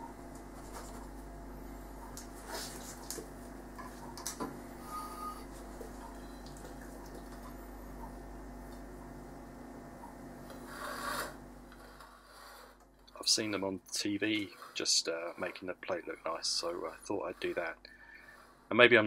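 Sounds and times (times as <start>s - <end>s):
steady low hum: 0.0s - 19.0s
ceramic plate scraping on stone: 10.6s - 12.8s, 14.3s - 18.6s.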